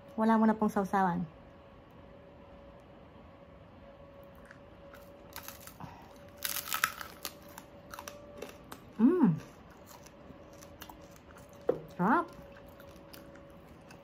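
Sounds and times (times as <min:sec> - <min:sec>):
crispy skin crunching: 0:04.3 - 0:14.0.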